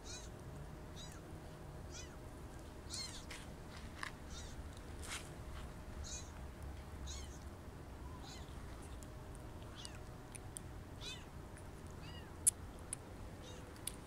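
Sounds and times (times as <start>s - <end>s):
kitten mewing: 0.0s - 0.3s, 1.0s - 1.2s, 1.9s - 2.2s, 2.9s - 3.3s, 4.3s - 4.6s, 6.0s - 6.3s, 7.1s - 7.4s, 8.1s - 8.5s, 11.0s - 11.3s, 12.0s - 12.4s.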